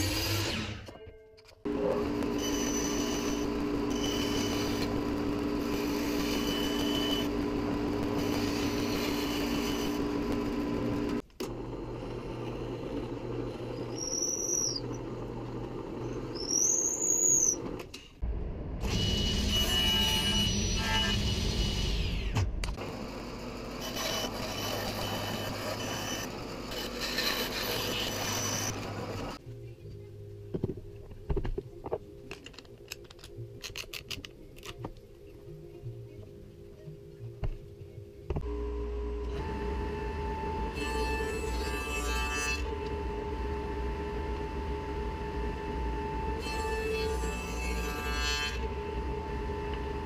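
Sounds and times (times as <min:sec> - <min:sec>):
bandsaw cutting plywood: 0:01.7 - 0:11.1, 0:23.8 - 0:29.4.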